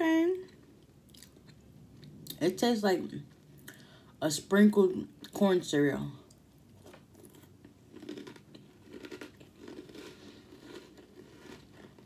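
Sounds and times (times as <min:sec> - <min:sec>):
person chewing cereal: 0:06.3 - 0:12.0.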